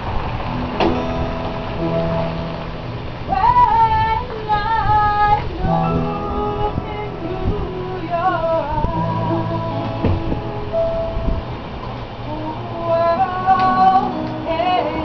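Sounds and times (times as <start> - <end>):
acoustic guitar: 0.0 - 15.0
piano: 0.0 - 15.0
cajon strikes: 0.5 - 2.5, 9.6 - 10.6
woman singing: 3.3 - 10.6, 12.2 - 15.0.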